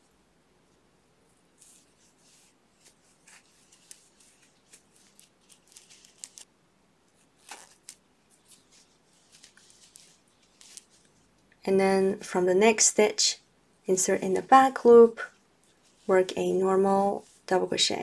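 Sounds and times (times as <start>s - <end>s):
yarn rustling: 0.6s - 6.5s, 7.1s - 11.4s, 14.3s - 17.8s.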